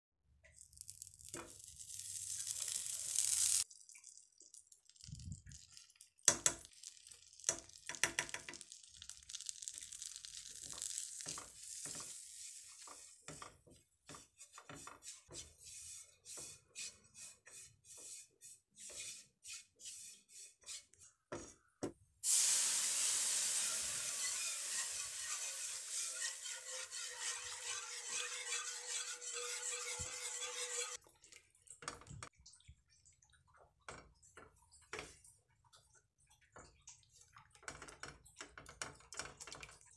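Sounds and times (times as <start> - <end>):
milk sizzling in a pan: 0.5 - 20.4, 22.2 - 31.0
butter sizzling: 0.6 - 16.6, 22.2 - 31.0
spatula scraping a pan: 9.4 - 21.7, 22.3 - 31.0.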